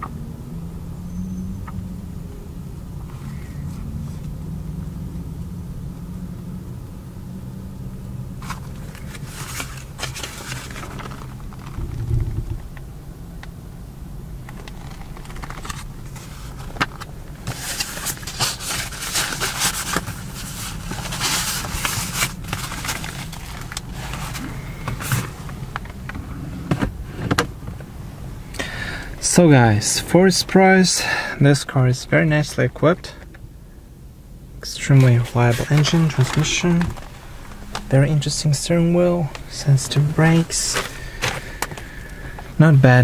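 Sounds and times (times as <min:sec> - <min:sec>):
low hum: 0:00.0 - 0:32.1, 0:33.2 - 0:42.3
paper pages turning: 0:08.4 - 0:12.0, 0:14.5 - 0:25.3, 0:35.0 - 0:38.4
dull thump: 0:11.7 - 0:12.8.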